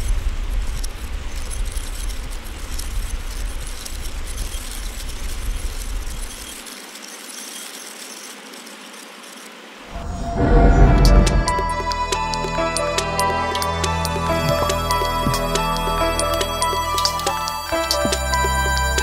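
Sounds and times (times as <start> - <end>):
deep rumble: 9.9 - 12.4.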